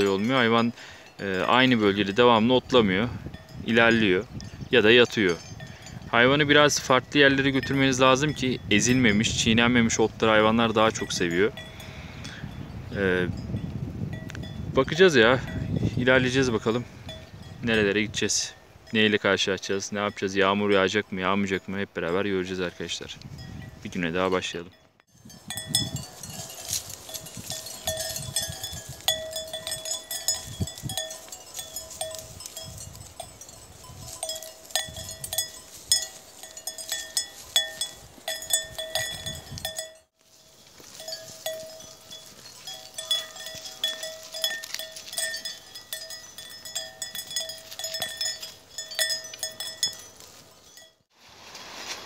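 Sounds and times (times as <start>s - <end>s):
cattle bells clanking: 0.0s - 51.0s.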